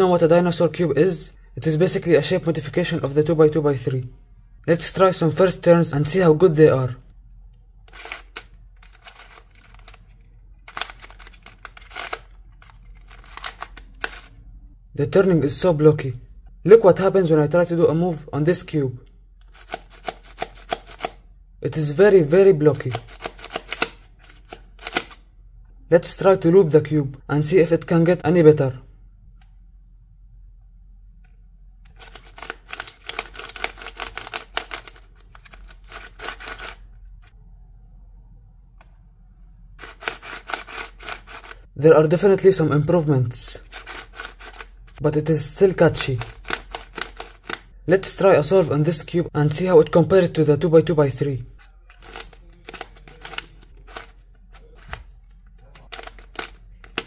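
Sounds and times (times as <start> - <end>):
plastic puzzle cube clicking: 7.9 - 14.3, 19.4 - 21.2, 22.8 - 25.2, 31.9 - 36.9, 39.8 - 41.7, 43.6 - 45.0, 46.0 - 47.7, 51.9 - 57.0.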